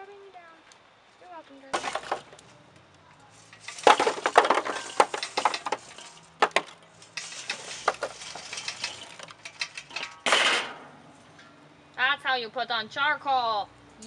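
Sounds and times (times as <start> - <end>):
charcoal clattering onto coals: 1.7 - 2.5, 3.4 - 11.6.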